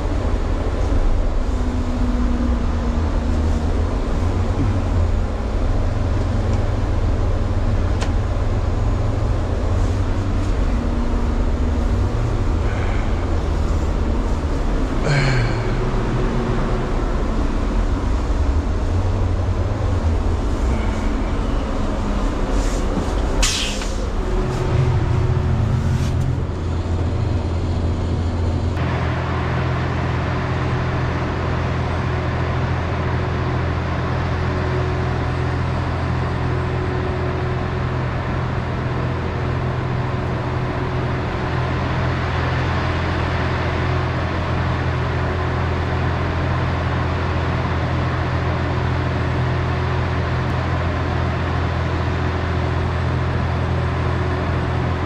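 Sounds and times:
trolleybus humming: 0.0 - 55.0
air hiss: 22.5 - 24.2.

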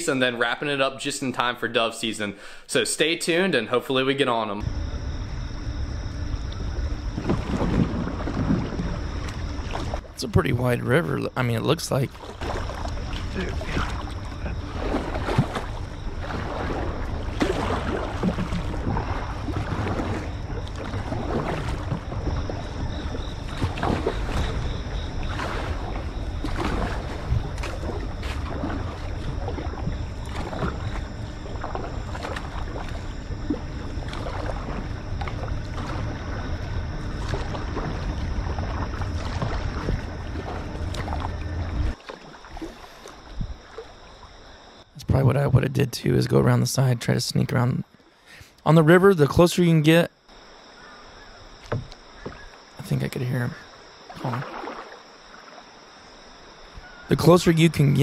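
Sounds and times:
water rushing along a hull: 3.3 - 58.0
steady low rumble: 4.6 - 42.0
paddles splashing in water: 4.6 - 44.9, 50.2 - 58.0.

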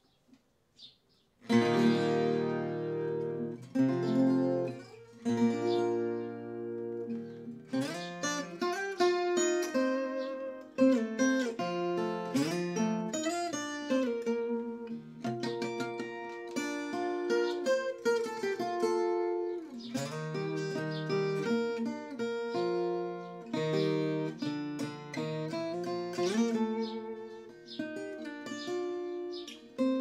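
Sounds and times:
acoustic guitar strumming and picking: 1.4 - 30.0.

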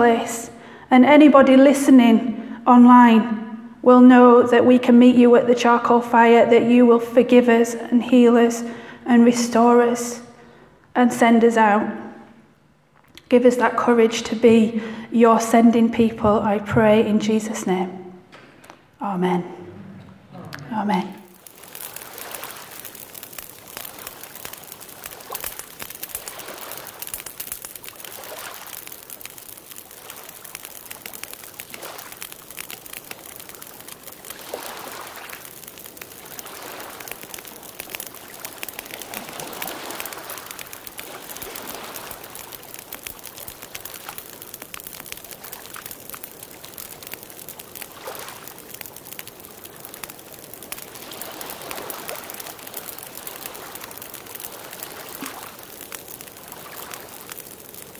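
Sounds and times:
campfire crackling and popping: 21.1 - 57.9.

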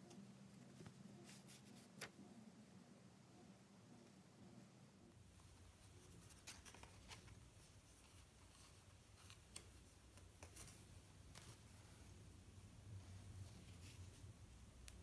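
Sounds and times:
low steady hum: 0.0 - 15.0
rustling of paper sheets: 0.6 - 2.2, 5.3 - 12.2.

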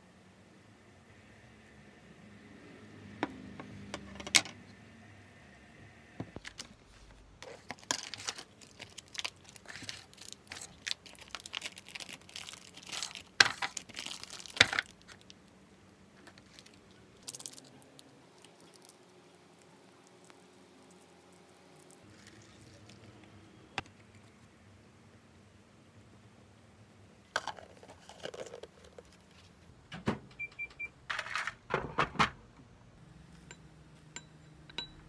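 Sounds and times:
plastic packaging crinkling and tearing: 6.4 - 15.4, 16.2 - 19.1.

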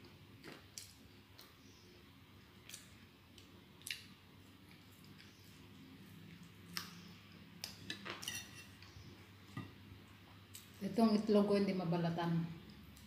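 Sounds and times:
person chewing fries: 2.4 - 5.5.

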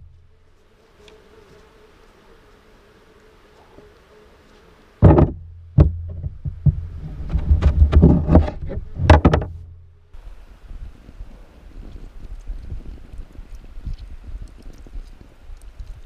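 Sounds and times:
knocks and thumps: 5.0 - 9.8.

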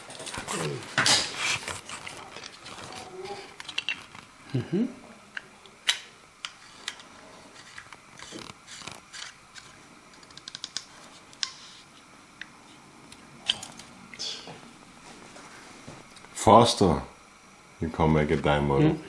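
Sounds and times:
plastic parts clicking: 7.7 - 11.6.

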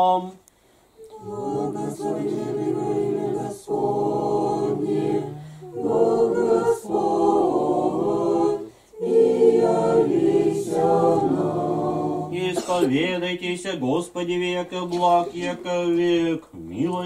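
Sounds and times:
choir singing unaccompanied chant: 1.0 - 12.7, 14.6 - 16.3.

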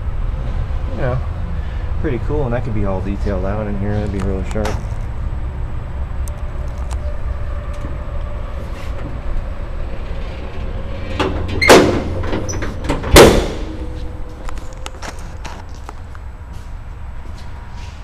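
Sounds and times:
low steady rumble: 0.0 - 18.0
car hood slamming shut: 11.5 - 13.8.

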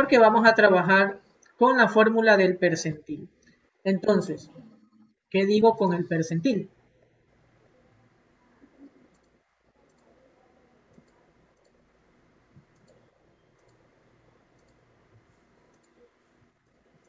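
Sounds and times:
low room hum: 0.0 - 17.0
computer mouse clicks: 8.6 - 10.2, 10.9 - 11.8, 12.5 - 14.9, 15.5 - 17.0.

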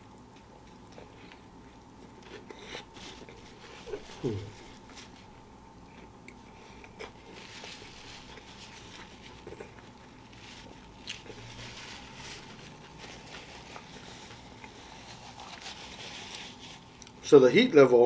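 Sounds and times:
faint chewing: 0.0 - 17.2
paper napkin rustling: 2.2 - 5.4, 7.1 - 17.0.

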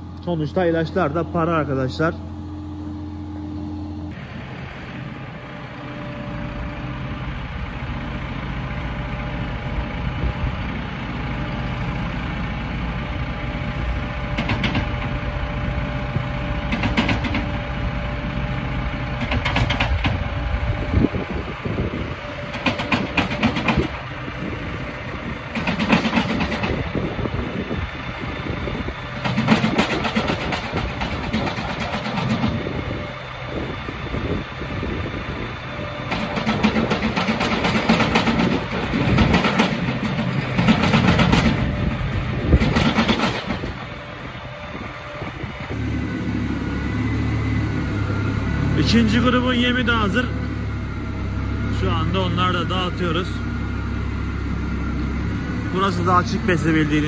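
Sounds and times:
tractor engines running: 0.0 - 57.0
feed rattling into mixer: 29.2 - 32.6, 36.1 - 41.7, 42.5 - 43.8.

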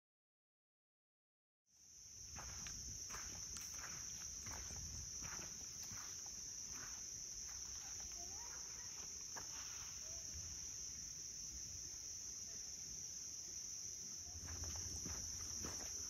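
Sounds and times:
insects trilling: 1.7 - 16.0
soft footsteps on trail: 1.9 - 12.0, 13.5 - 16.0.

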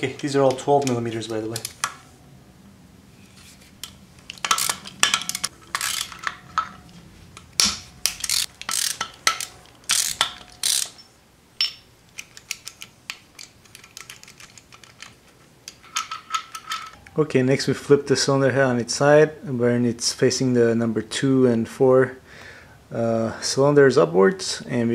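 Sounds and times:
socket ratchet clicking: 3.8 - 6.4, 7.6 - 11.1, 12.1 - 15.1.

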